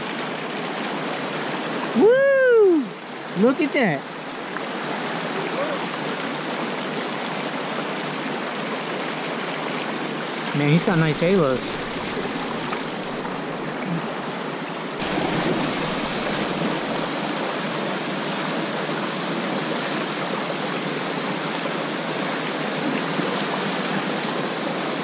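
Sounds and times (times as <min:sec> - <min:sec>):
brook rushing over cascade: 0:10.6 - 0:13.8, 0:15.0 - 0:20.3.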